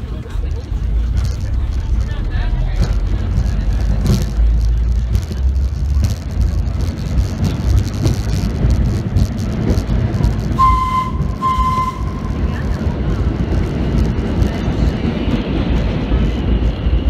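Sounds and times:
subway train rumbling in tunnel: 0:00.0 - 0:17.0
train whistle blasts: 0:10.6 - 0:12.4.

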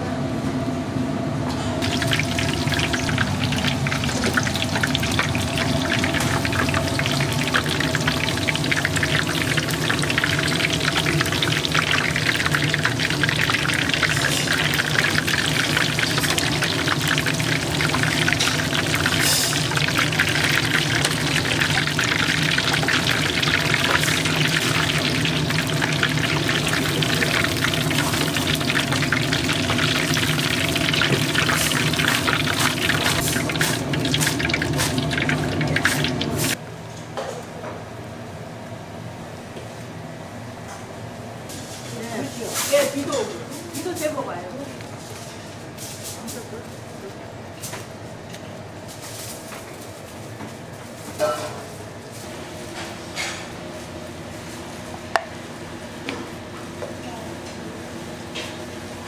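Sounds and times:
food deep-frying in oil: 0:01.8 - 0:36.6.

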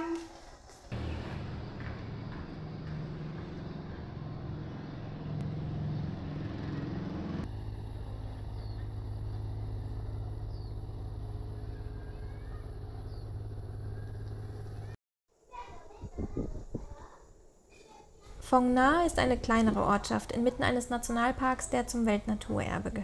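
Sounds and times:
vehicle engine drone: 0:00.9 - 0:15.0.

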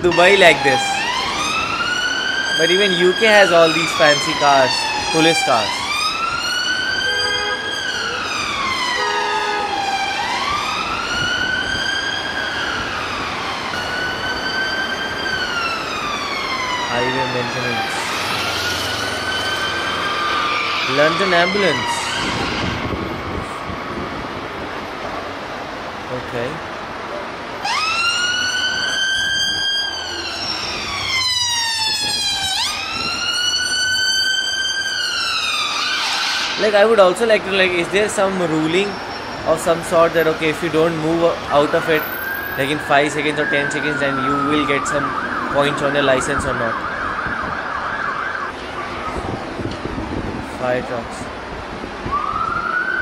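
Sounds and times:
police siren wailing: 0:00.0 - 0:25.0, 0:27.6 - 0:50.4, 0:51.2 - 0:53.0
short steady siren tone: 0:05.5 - 0:12.6.

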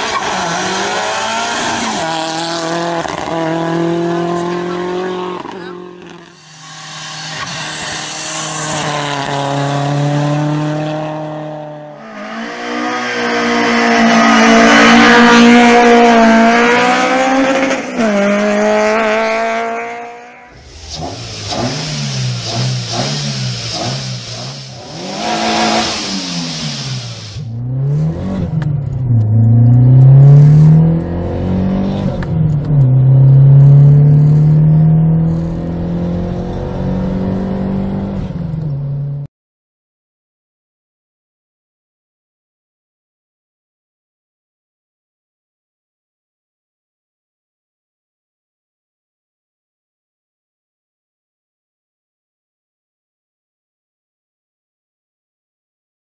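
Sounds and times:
rally car engine high revs: 0:00.0 - 0:38.4
engine revving blips: 0:00.0 - 0:38.9
engine accelerating through gears: 0:20.6 - 0:39.2.

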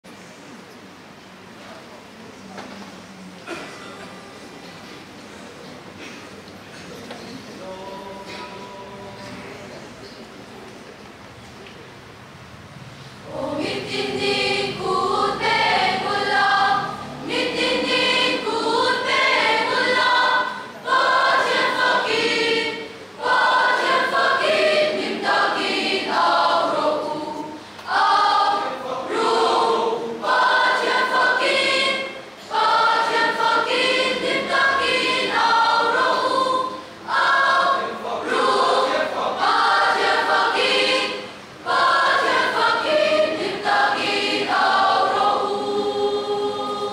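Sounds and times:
mixed choir singing: 0:07.5 - 0:09.5, 0:13.1 - 0:46.9.

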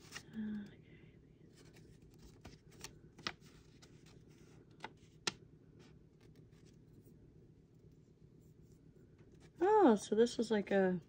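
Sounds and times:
paper wrapping rustling: 0:01.5 - 0:05.4.

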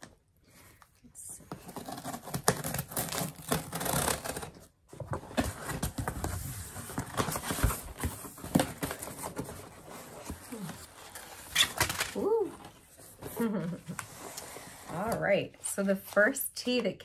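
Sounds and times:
scissors cutting cardboard: 0:01.6 - 0:04.6
packaging tearing and crinkling: 0:01.8 - 0:04.6.

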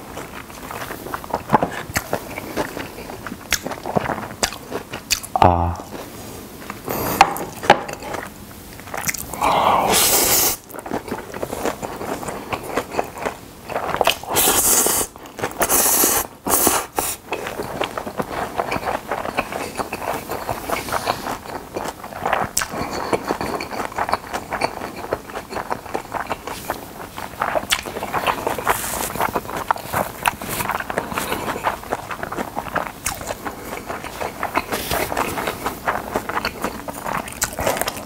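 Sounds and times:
wet chewing: 0:00.0 - 0:38.0
noodle slurping: 0:09.0 - 0:10.8, 0:11.4 - 0:38.0.

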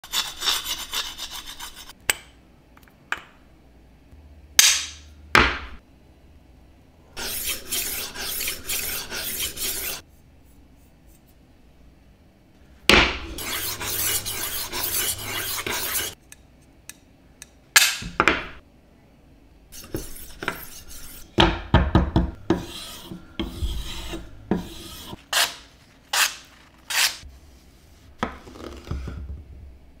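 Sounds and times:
knife scraping on stone: 0:07.2 - 0:10.0, 0:13.4 - 0:16.2, 0:22.5 - 0:27.2
knife sharpener grinding: 0:13.4 - 0:16.2
knife strokes on cutting board: 0:22.5 - 0:28.1.

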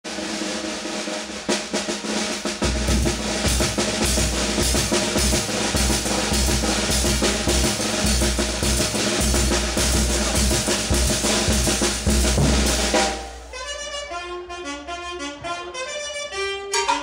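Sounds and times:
snare drum rolls: 0:00.0 - 0:13.6
heavy bass drum: 0:00.1 - 0:13.5
brass band playing: 0:00.1 - 0:17.0.

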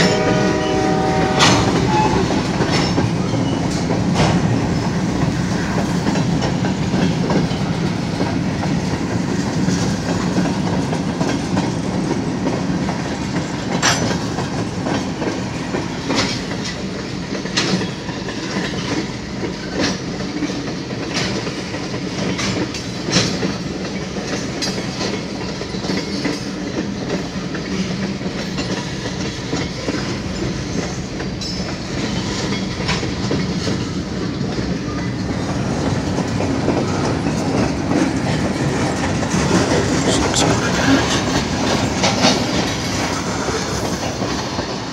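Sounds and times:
train wheels rumbling on rails: 0:00.0 - 0:44.9
wheels clacking over track: 0:01.3 - 0:44.9.

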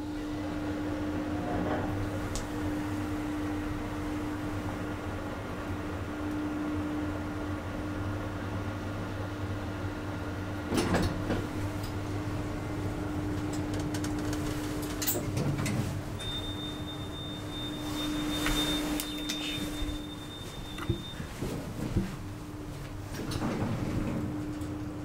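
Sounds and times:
elevator hum: 0:00.0 - 0:25.0
elevator clunk: 0:13.3 - 0:24.9
thin high whine: 0:16.2 - 0:21.3.

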